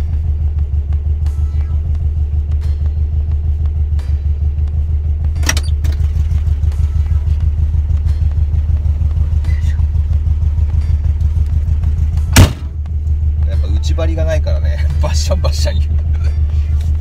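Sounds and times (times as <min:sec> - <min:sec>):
car engine idling: 0:00.0 - 0:17.0
car door opening click: 0:05.4 - 0:06.0.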